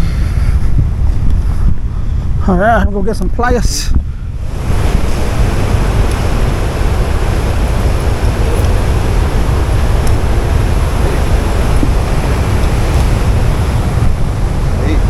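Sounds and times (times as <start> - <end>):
water rushing through spillway: 4.4 - 15.0.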